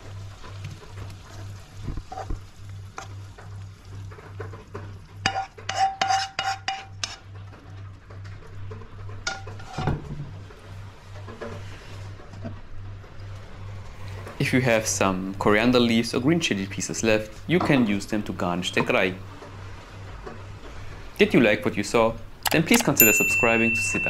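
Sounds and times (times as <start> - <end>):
spatula scraping a pan: 2.0 - 2.4, 4.2 - 7.4, 9.0 - 10.0
utensils clinking against glass: 22.5 - 24.0.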